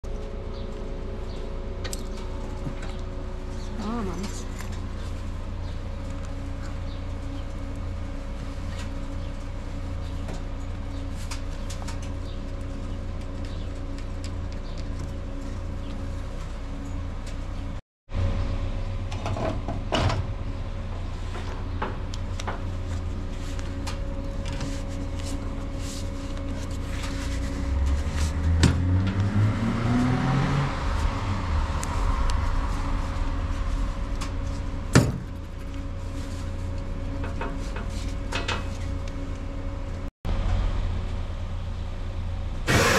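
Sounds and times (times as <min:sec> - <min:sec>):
steady low hum: 0:00.0 - 0:42.9
engine rising: 0:26.3 - 0:37.2.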